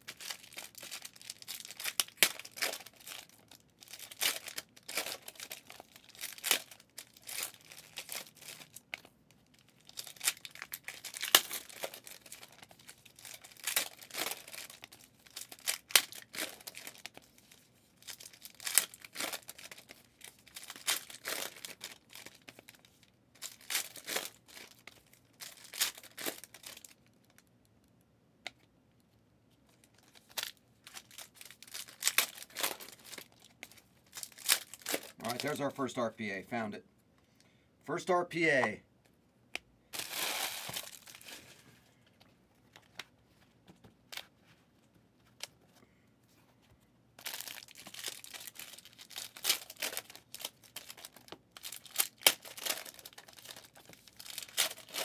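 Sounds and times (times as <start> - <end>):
card pack wrappers tearing: 0.0 - 8.8, 9.8 - 17.3, 18.0 - 22.8, 23.4 - 26.9, 30.0 - 35.7, 40.0 - 41.5, 47.2 - 55.0.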